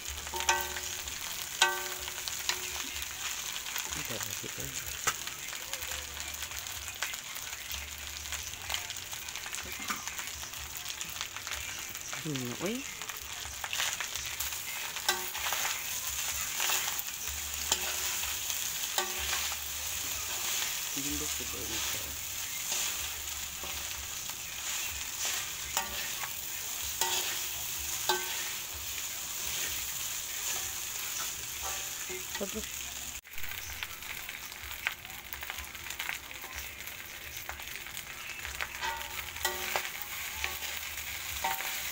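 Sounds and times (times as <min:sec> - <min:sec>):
rice sizzling in a wok: 0:00.0 - 0:41.9
spatula scraping a pan: 0:13.7 - 0:32.3.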